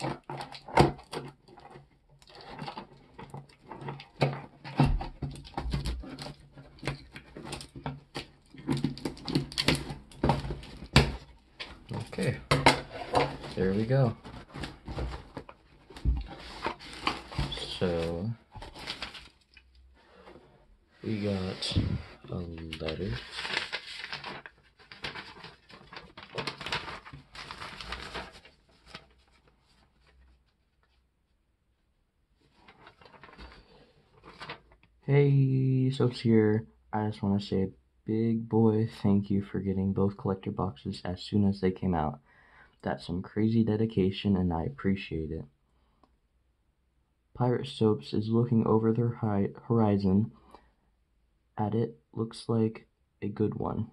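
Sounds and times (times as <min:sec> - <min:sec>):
paper rustling and crinkling: 0:00.0 - 0:20.4, 0:21.0 - 0:31.0, 0:32.4 - 0:34.8.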